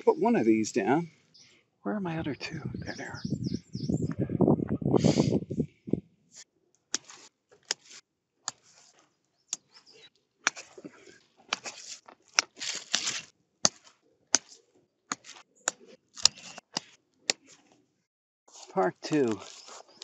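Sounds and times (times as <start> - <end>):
foil sheets crinkling: 10.7 - 14.6, 18.5 - 20.0.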